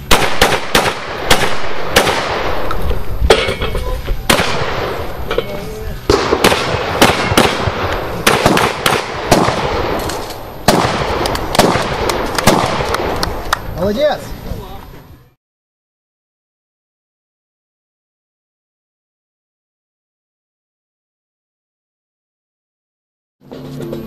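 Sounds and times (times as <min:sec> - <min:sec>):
shotgun shots at steel targets: 0:00.0 - 0:05.5, 0:06.1 - 0:13.2.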